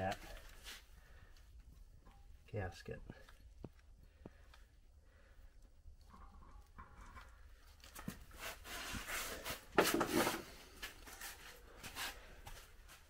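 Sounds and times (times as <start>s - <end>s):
rustles scrapes and knocks on tire: 6.7s - 12.1s.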